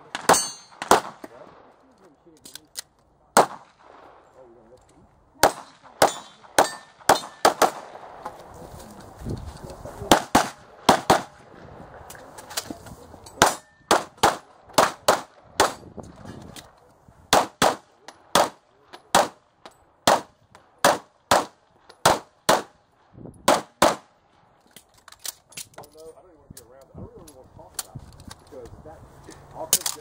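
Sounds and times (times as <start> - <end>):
pistol shots: 0.0 - 1.7, 3.3 - 4.2, 5.4 - 8.2, 10.1 - 11.4, 13.4 - 15.9, 17.3 - 19.4, 20.0 - 22.8, 23.4 - 24.1.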